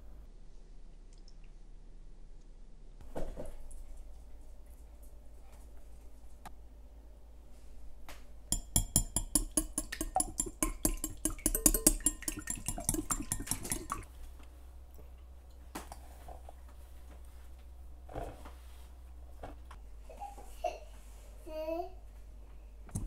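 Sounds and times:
utensils knocking and clattering: 0:08.6 - 0:14.0.

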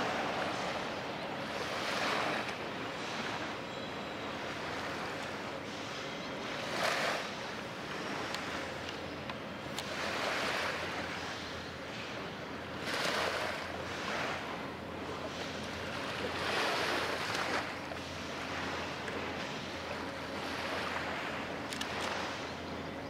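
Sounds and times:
small waves washing on shore: 0:00.0 - 0:22.8
steady low hum: 0:00.0 - 0:23.0.

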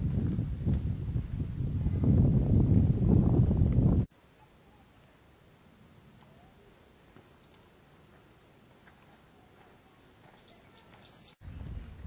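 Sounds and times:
faint bird chirps: 0:04.4 - 0:07.6, 0:09.4 - 0:11.9.

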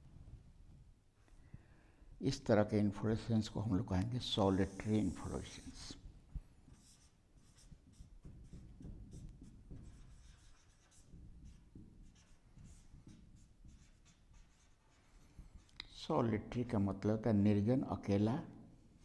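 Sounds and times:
marker writing on whiteboard: 0:04.4 - 0:06.0, 0:06.7 - 0:15.8.

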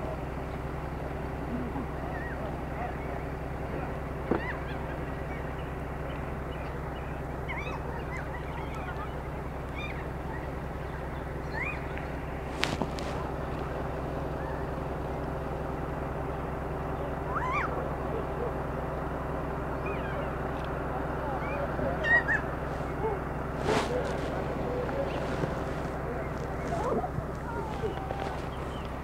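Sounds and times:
low hum: 0:00.0 - 0:29.0
parrots calling: 0:04.3 - 0:13.3, 0:19.7 - 0:20.5, 0:21.4 - 0:29.0.

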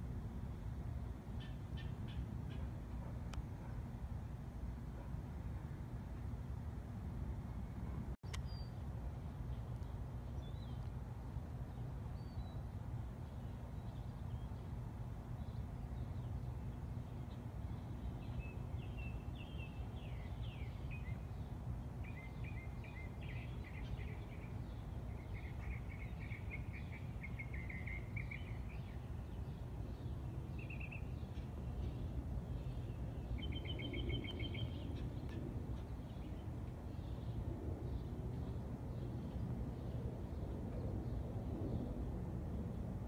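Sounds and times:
songbirds chirping and trilling: 0:08.3 - 0:42.0.

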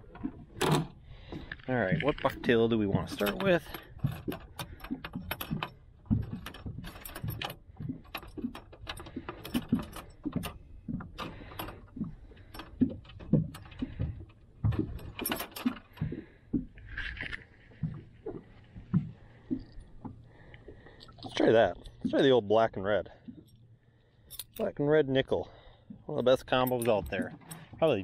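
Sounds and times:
metal hooks clicking and rattling: 0:02.2 - 0:14.0, 0:14.8 - 0:16.0, 0:24.3 - 0:24.7, 0:26.2 - 0:28.0.

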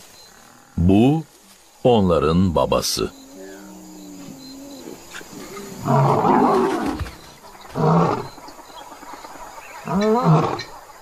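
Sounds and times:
lion roaring: 0:03.1 - 0:07.1.

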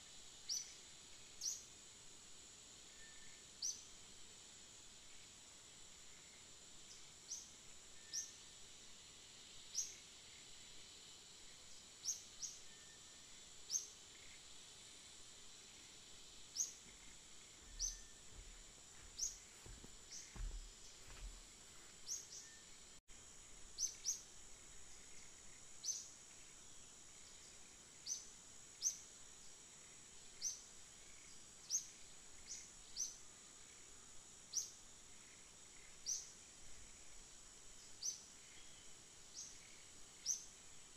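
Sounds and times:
high insect drone: 0:00.0 - 0:40.9
bird chirping: 0:16.5 - 0:21.3.

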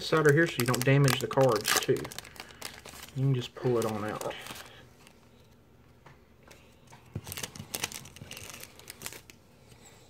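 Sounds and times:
foil wrapper crinkling: 0:00.0 - 0:05.2, 0:07.1 - 0:09.4
trading cards being handled: 0:00.0 - 0:09.4.

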